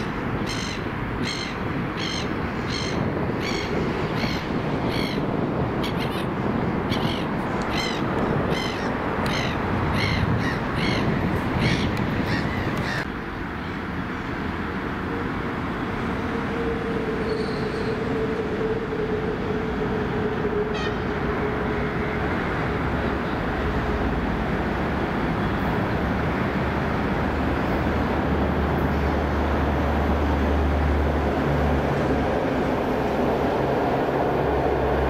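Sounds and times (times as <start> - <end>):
steady background noise: 0.0 - 35.0
crow cawing: 6.9 - 13.0
electric train approaching: 14.2 - 35.0.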